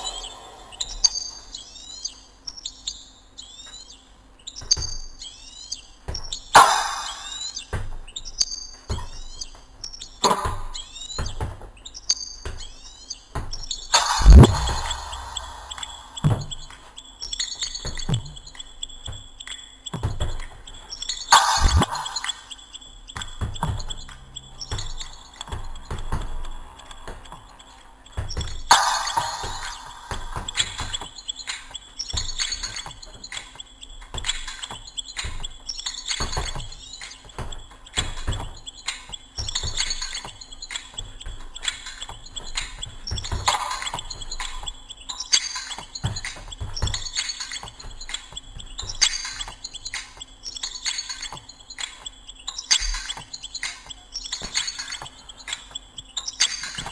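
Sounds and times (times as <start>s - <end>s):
music: 19.4s - 56.9s.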